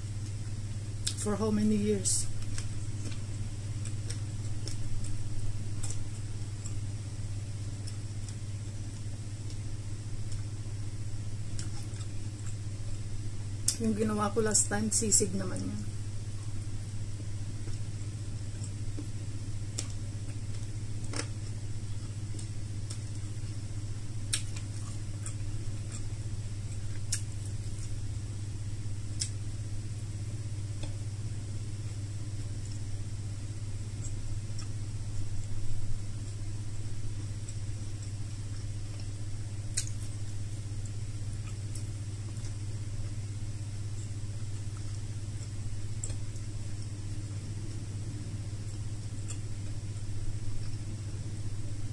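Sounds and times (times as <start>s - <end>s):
steady low hum: 0.0s - 51.9s
person eating and chewing: 2.3s - 13.8s, 17.4s - 28.3s, 33.7s - 51.6s.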